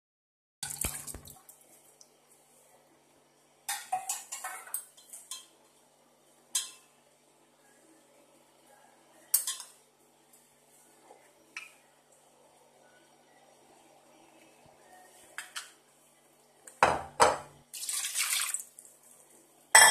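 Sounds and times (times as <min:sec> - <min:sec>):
metal pot and utensils clinking: 0:03.7 - 0:05.6, 0:06.5 - 0:06.9.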